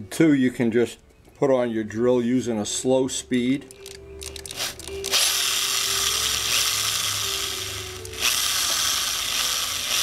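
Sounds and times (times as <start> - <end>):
electric drill whirring: 4.6 - 10.0.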